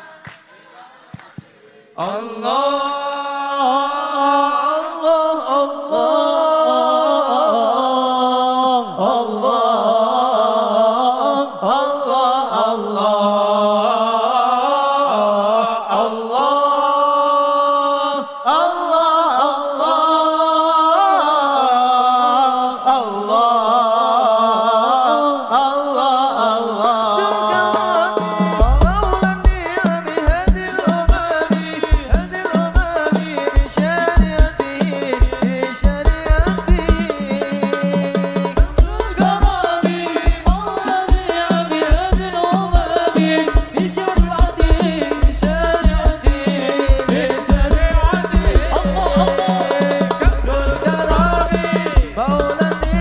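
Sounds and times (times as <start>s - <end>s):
men singing a chant: 0.0s - 53.0s.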